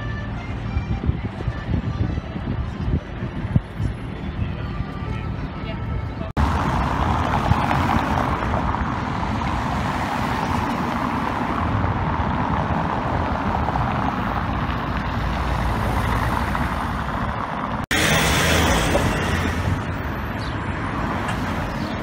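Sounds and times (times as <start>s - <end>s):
cars driving past: 6.4s - 22.0s.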